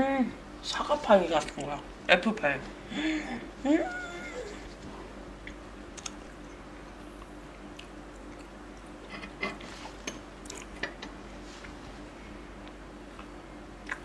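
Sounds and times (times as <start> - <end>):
faint steady hum: 0.0 - 14.0
quiet chewing: 7.2 - 11.8, 12.6 - 14.0.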